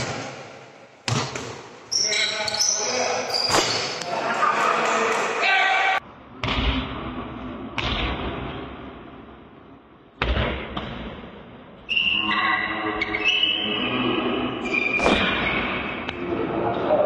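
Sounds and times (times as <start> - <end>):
basketball bouncing on court: 1.0 - 1.7
shoe squeaks: 1.9 - 4.0, 11.9 - 13.8, 14.6 - 16.0.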